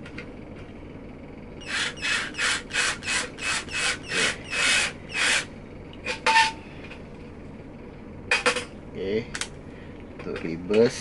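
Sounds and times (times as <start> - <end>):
drill driving screw into metal: 1.6 - 5.5.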